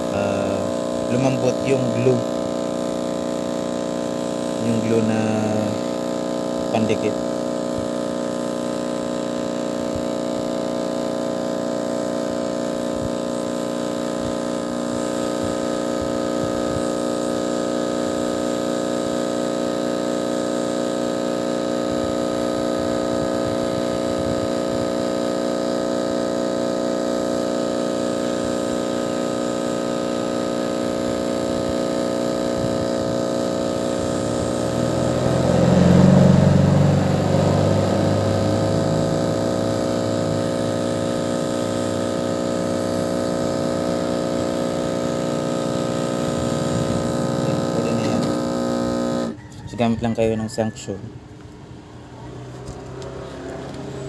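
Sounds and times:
hot air blower fan whine: 0.0 - 54.0
deeper air rush: 44.0 - 48.5.

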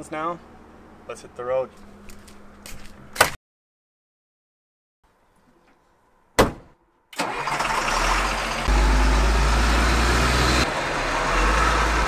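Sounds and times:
truck diesel engine rumbling: 7.2 - 12.0.

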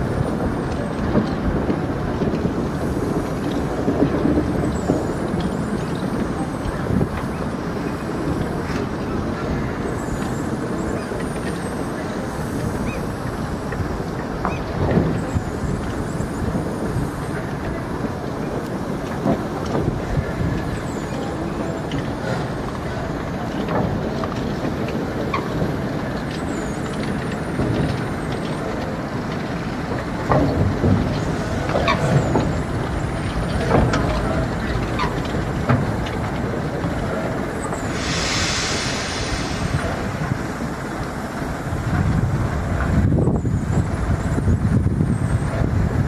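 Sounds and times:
locomotives rumbling: 0.0 - 46.0
air hiss: 37.5 - 41.8.

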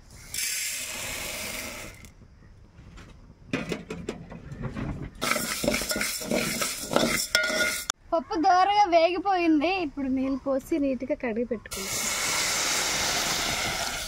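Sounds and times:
lentils poured into metal pot: 5.2 - 7.8
metal spoon stirring lentils: 5.2 - 7.9.

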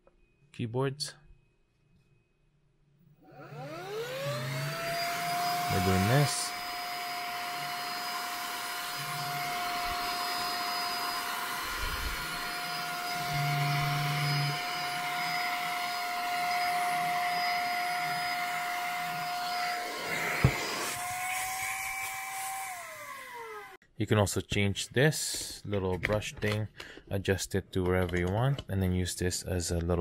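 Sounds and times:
handheld vacuum motor whine: 3.2 - 23.8.

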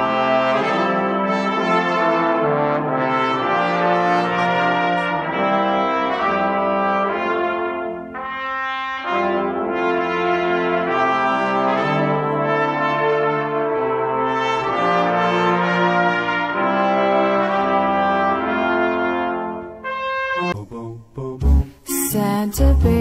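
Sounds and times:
brass ensemble playing chords: 0.0 - 20.6, 21.4 - 23.0.

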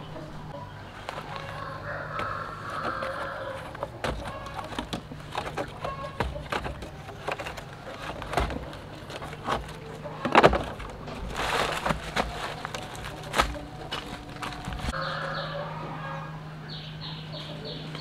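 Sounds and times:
basket rustle: 0.8 - 15.0
fruits knocking in basket: 0.9 - 15.0
pruning shears snipping: 1.0 - 15.0.

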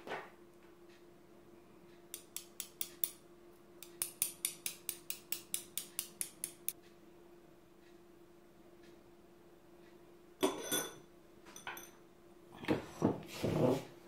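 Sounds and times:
metal teaspoon tapping: 2.1 - 3.2, 3.8 - 6.8.

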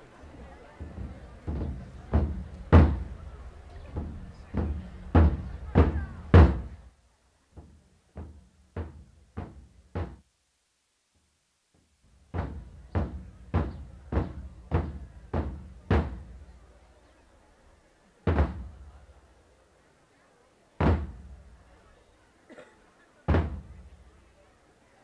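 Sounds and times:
taiko drums struck with sticks: 0.8 - 6.8, 7.6 - 10.2, 12.3 - 16.4, 18.3 - 18.7, 20.8 - 21.3.

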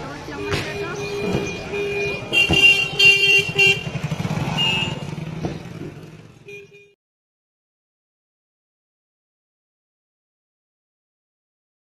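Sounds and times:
engines running: 0.0 - 6.8
vehicle horn honking: 0.3 - 5.2, 6.4 - 7.0.

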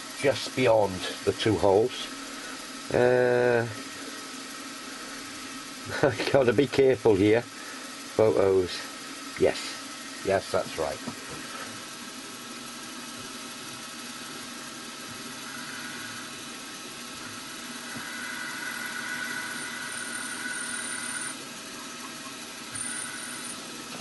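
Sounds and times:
high motor whine: 0.0 - 24.0
milling machine motor hum: 0.0 - 24.0.

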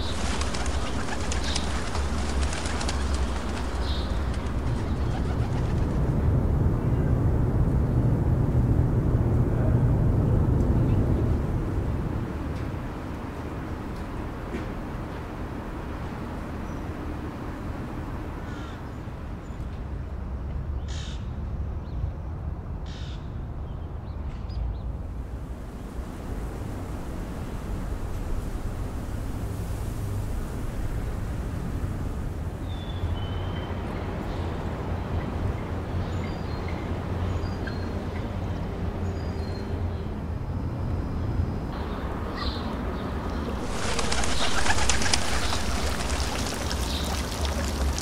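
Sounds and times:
wind noise over microphone: 0.0 - 12.9
harsh bird calls: 43.6 - 48.0.

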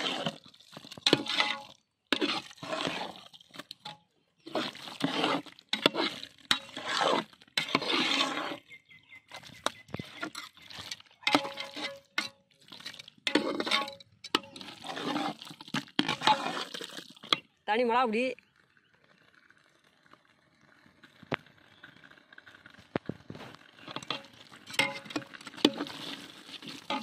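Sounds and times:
metal spatula stirring in pot: 0.0 - 17.6, 23.6 - 27.0
metal clinking on pot: 11.2 - 12.4, 13.2 - 14.8, 23.9 - 26.0, 26.8 - 27.0.

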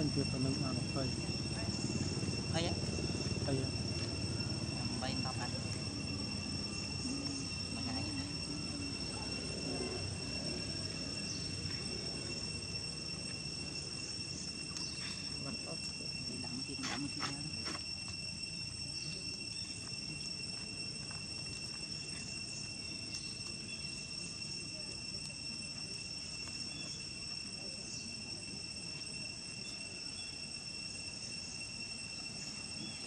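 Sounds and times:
low rumble: 0.0 - 21.4
high-pitched insect chorus: 0.0 - 33.0.

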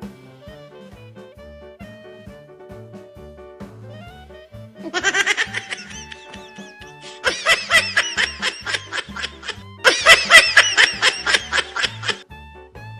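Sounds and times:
upbeat jazzy music: 0.0 - 12.9
comic high-pitched laughing: 4.8 - 12.2.

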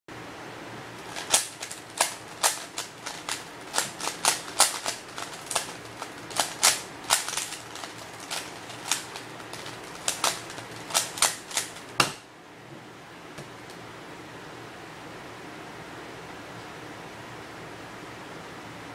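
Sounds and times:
puzzle cube layers clicking: 1.0 - 12.1.

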